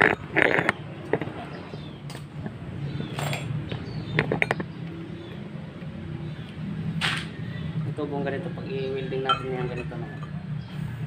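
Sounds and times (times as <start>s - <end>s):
metal pipe clinking: 9.2s - 10.5s.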